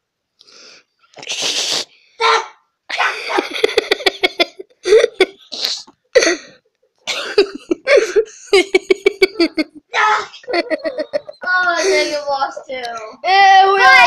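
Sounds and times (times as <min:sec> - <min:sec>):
boy laughing hard: 0:02.9 - 0:05.5, 0:07.1 - 0:12.2
boy gasping: 0:04.8 - 0:06.6, 0:07.8 - 0:08.4, 0:11.6 - 0:12.3.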